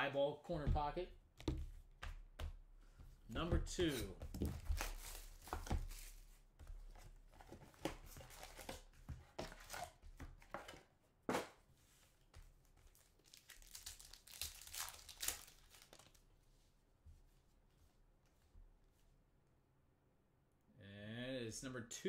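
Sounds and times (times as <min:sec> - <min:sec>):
foil pack crinkling and tearing: 0:13.2 - 0:16.2.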